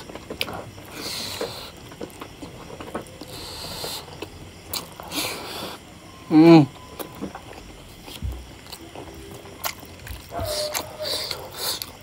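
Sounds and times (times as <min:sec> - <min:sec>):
chewing and wet mouth clicks: 0:09.6 - 0:12.0.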